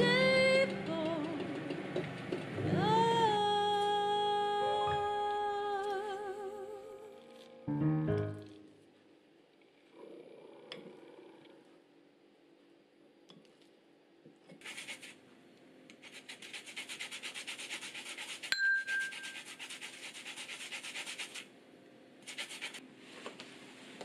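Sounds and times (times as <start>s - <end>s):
sharp metallic ding: 18.6s - 19.2s.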